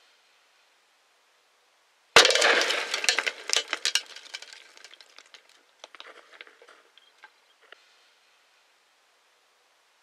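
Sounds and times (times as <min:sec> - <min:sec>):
glass fragments clinking: 0:02.2 - 0:05.5.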